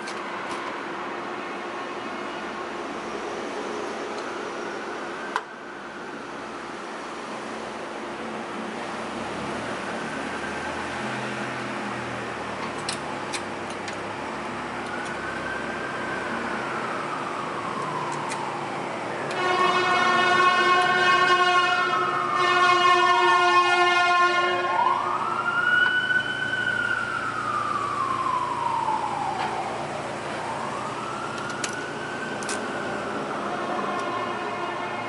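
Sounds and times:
siren wailing: 0:09.4 - 0:11.6, 0:14.1 - 0:35.0
long horn blast: 0:19.3 - 0:24.8, 0:33.6 - 0:35.0.

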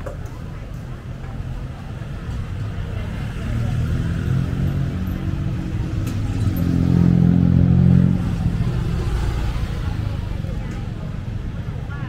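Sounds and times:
street traffic: 0:00.0 - 0:12.0
vehicle engine passing close: 0:03.0 - 0:10.5.

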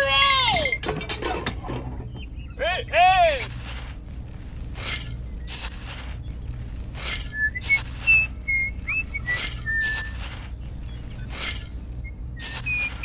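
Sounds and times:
small shovel scraping sand: 0:03.3 - 0:13.0
high whistled chirps: 0:07.1 - 0:13.0.

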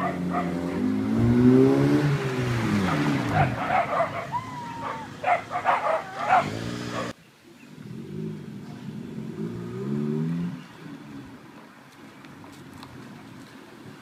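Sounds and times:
dog barking: 0:00.0 - 0:01.0, 0:02.8 - 0:07.2
car engines revving: 0:00.0 - 0:13.4.

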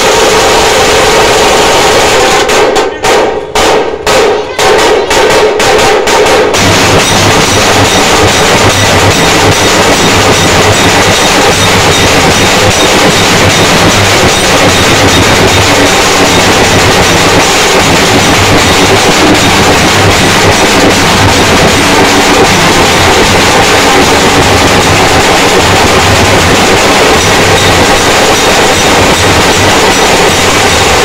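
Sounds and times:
drums beaten fast with sticks: 0:00.0 - 0:31.0
clashing cymbals: 0:06.4 - 0:31.0.

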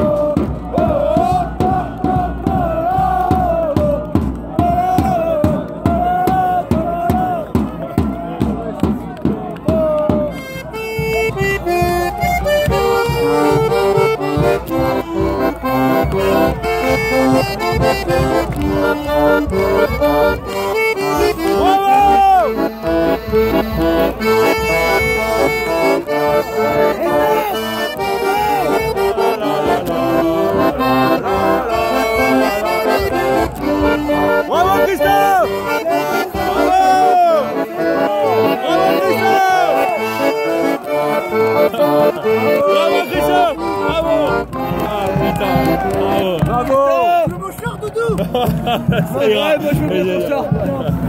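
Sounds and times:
people shouting: 0:00.0 - 0:07.4, 0:09.6 - 0:10.5, 0:20.0 - 0:22.7, 0:24.7 - 0:32.8, 0:33.8 - 0:48.2
accordion playing quick notes: 0:10.3 - 0:46.6.

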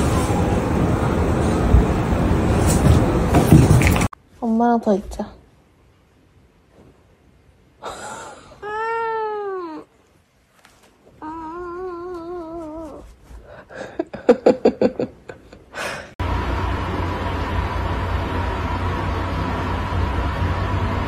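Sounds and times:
cat yowling: 0:08.6 - 0:09.9, 0:11.2 - 0:13.0.

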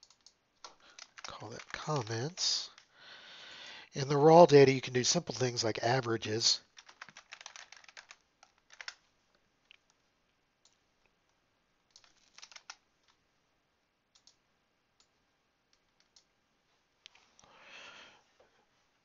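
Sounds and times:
keyboard typing: 0:00.0 - 0:02.9, 0:06.6 - 0:09.0, 0:11.9 - 0:13.2
soft hiss: 0:00.0 - 0:06.8, 0:12.8 - 0:19.0.

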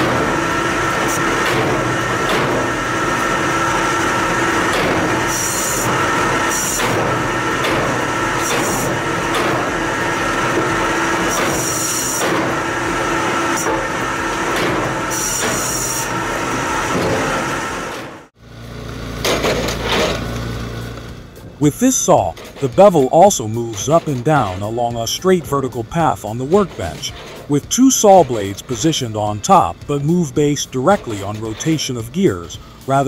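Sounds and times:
wood going through blade: 0:00.0 - 0:20.6
wood cutting machine humming: 0:00.0 - 0:33.0.

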